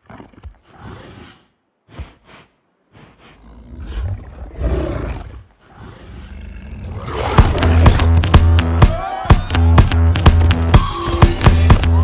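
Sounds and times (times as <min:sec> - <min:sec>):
giant wolf growling: 0:03.4 - 0:08.0.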